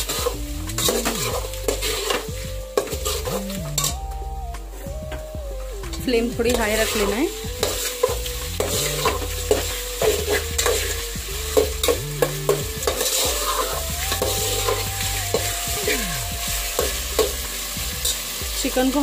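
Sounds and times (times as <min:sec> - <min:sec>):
metal spoon scraping a pot: 0:00.0 - 0:04.0, 0:06.6 - 0:15.4
chicken sizzling in a pot: 0:00.0 - 0:04.2, 0:04.8 - 0:19.0.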